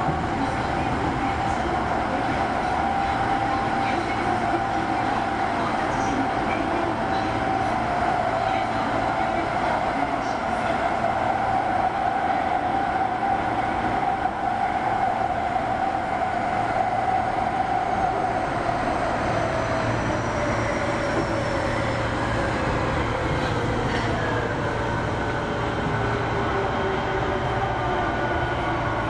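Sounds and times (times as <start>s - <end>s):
subway train running: 0.0s - 29.0s.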